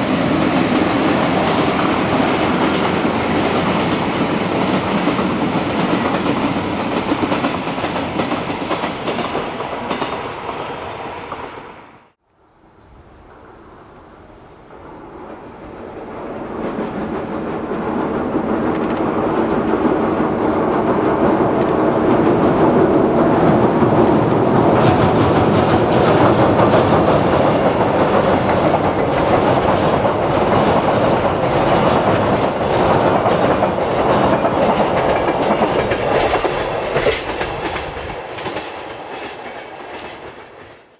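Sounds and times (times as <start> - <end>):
freight train crossing bridge: 0.0 - 12.2, 12.8 - 40.9
wheels clacking over rail joints: 16.5 - 40.8.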